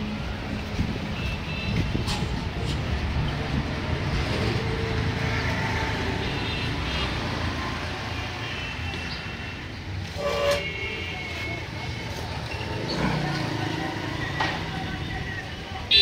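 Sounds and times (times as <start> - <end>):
traffic rumble: 0.0 - 16.0
short horn toot: 10.2 - 10.8.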